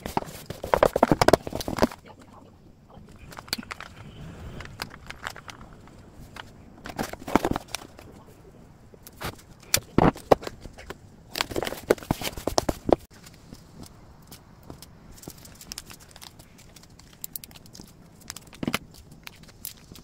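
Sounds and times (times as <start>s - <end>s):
paper rustling and crinkling: 0.0s - 2.1s, 9.1s - 20.0s.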